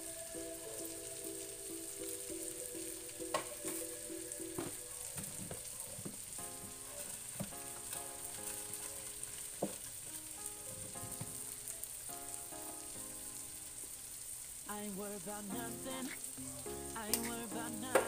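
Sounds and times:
potatoes sizzling in a pan: 0.0s - 18.0s
sharp pops and crackles: 0.8s - 12.8s, 16.0s - 18.0s.

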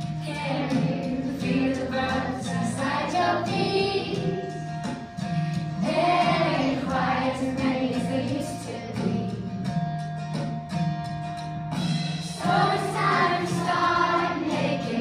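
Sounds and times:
musical accompaniment: 0.0s - 15.0s
children singing in unison: 0.2s - 4.7s, 5.8s - 9.3s, 12.4s - 15.0s.

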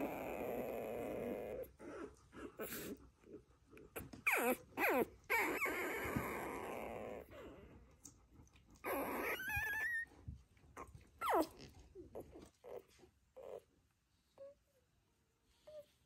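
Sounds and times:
puppy squeaking and whining: 0.0s - 1.7s, 4.0s - 7.4s, 8.8s - 10.2s, 10.8s - 13.7s.

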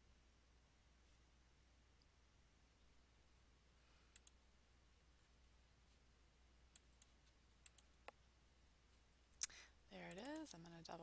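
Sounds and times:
computer mouse clicks: 4.1s - 4.4s, 6.7s - 8.2s, 9.4s - 10.6s.

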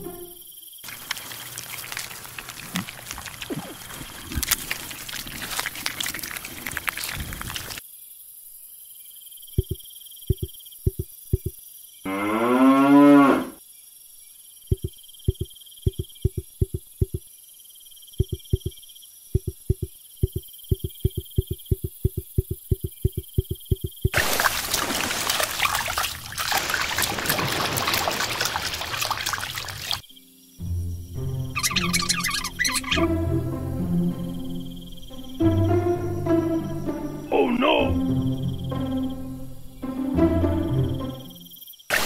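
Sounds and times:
cow mooing: 12.1s - 13.6s.

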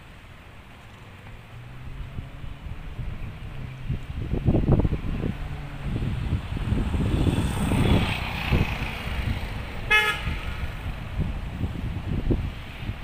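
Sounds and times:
road traffic rumble: 0.0s - 13.0s
vehicle horn toot: 9.9s - 10.7s.

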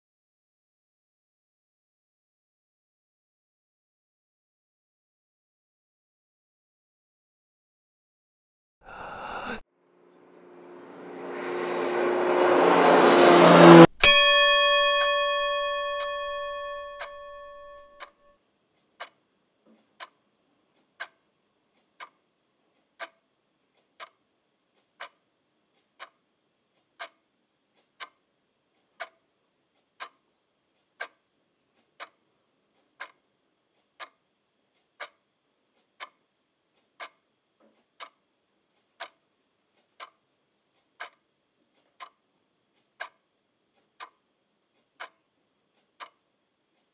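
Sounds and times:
struck chime ringing: 12.9s - 18.3s
clock ticking: 14.0s - 18.2s, 18.8s - 22.2s, 22.8s - 46.9s.

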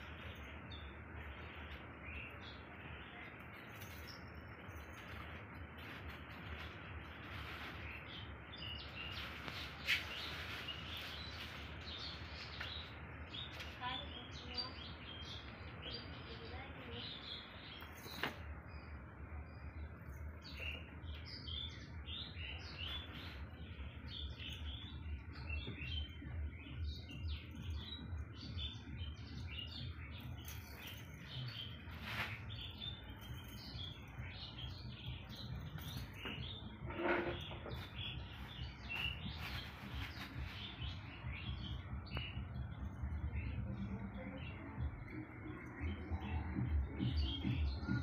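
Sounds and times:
small birds chirping: 0.0s - 48.0s
low background rumble: 37.9s - 48.0s.

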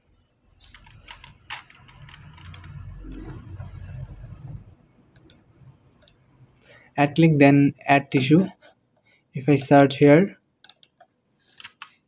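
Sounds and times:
keyboard and mouse clicks: 0.6s - 3.4s, 5.1s - 6.2s, 10.6s - 12.0s
low rumble: 1.9s - 5.8s.

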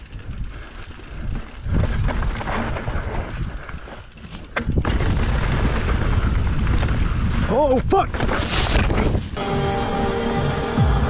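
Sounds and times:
bike rattling: 0.0s - 9.4s
wind on microphone: 0.1s - 3.8s
tyres rumbling on dirt: 1.1s - 9.4s.

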